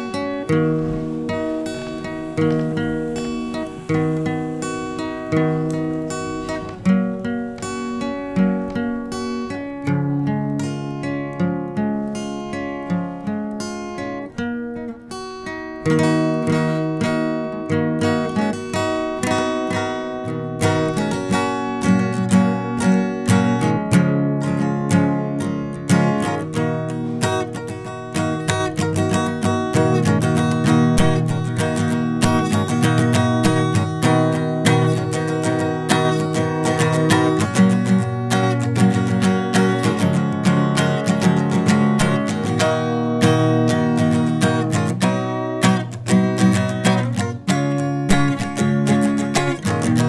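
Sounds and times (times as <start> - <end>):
acoustic guitar strumming chords: 0.0 - 50.0.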